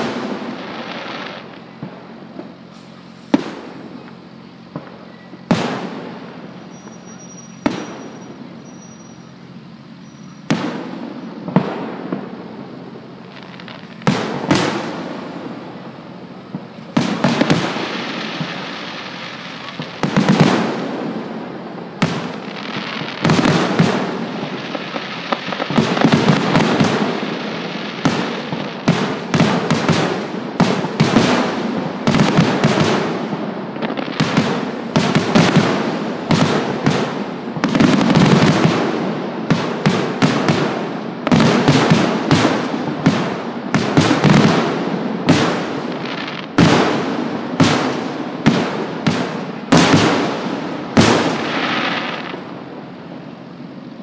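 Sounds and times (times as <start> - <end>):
firework shells bursting: 13.0 - 52.6.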